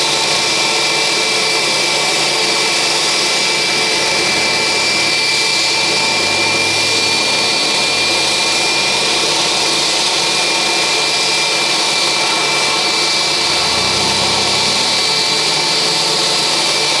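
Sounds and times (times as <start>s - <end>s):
jet turbine whining: 0.0s - 17.0s
loud rush of air: 12.9s - 16.9s.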